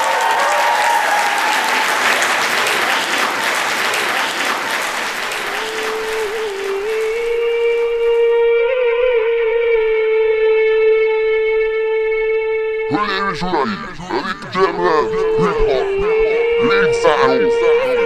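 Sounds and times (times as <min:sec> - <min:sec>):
audience applauding: 0:00.0 - 0:08.2, 0:12.9 - 0:18.0
held musical tone: 0:05.2 - 0:18.0.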